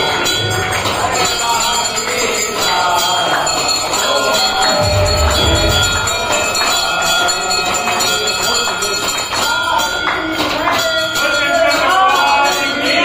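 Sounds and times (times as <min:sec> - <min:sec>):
devotional music: 0:04.6 - 0:07.5
low rumble: 0:04.7 - 0:07.0.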